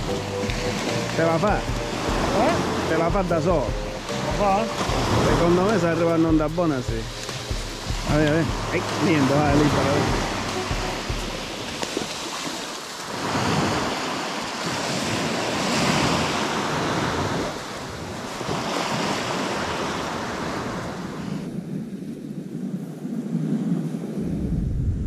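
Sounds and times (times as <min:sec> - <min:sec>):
small waves washing on shore: 0:00.0 - 0:24.5
wind on microphone: 0:06.3 - 0:25.0.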